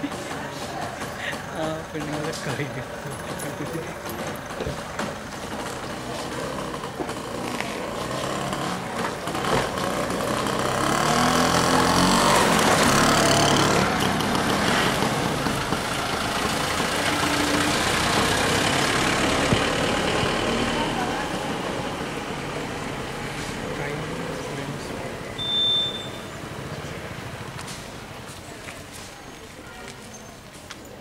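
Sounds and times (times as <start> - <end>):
motor scooter passing: 0.0 - 30.2
car driving past: 5.6 - 28.2.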